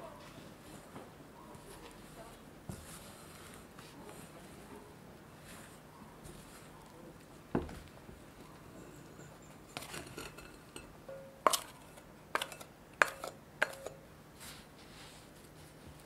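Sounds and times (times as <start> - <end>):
glass bowl clinking: 8.8 - 11.7
dough scraper scraping: 11.5 - 14.0.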